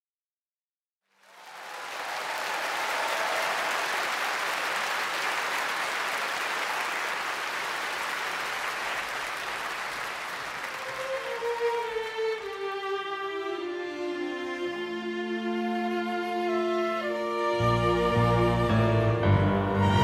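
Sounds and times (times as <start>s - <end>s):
audience applauding: 1.1s - 13.9s
violin playing: 10.7s - 20.0s.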